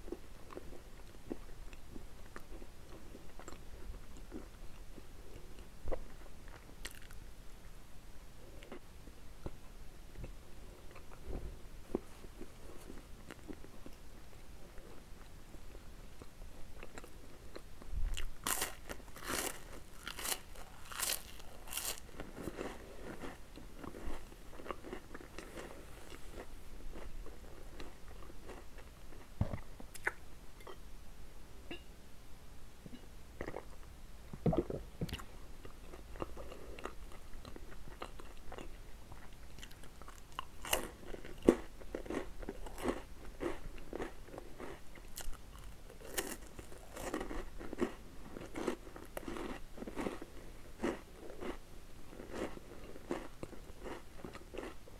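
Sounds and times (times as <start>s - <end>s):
biscuits crunching: 6.5s - 7.2s, 16.8s - 30.2s, 34.5s - 54.8s
chewing: 34.5s - 51.6s.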